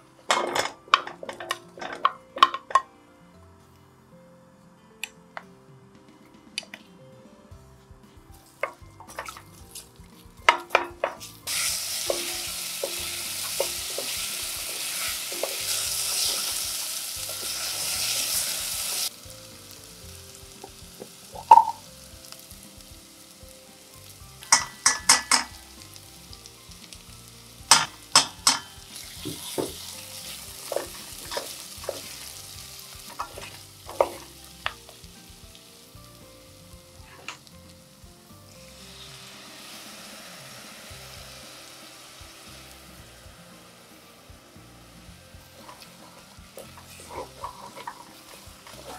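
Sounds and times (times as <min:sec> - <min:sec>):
potatoes sizzling in a pot: 0:08.4 - 0:48.9
wooden spoon knocking on pot: 0:21.4 - 0:21.8.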